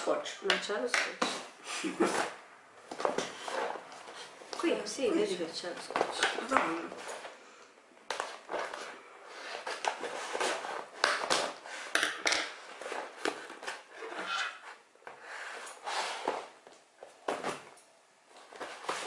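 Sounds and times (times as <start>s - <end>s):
cardboard scraping: 2.0s - 4.4s, 8.1s - 11.9s, 12.6s - 16.6s, 18.4s - 19.0s.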